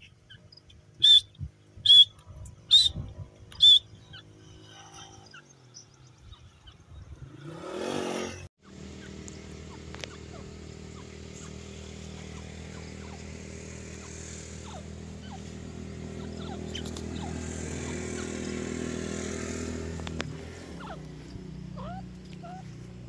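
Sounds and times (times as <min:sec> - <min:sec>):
bird chirps: 0:00.0 - 0:07.5, 0:08.9 - 0:18.6
engine humming: 0:00.0 - 0:23.0.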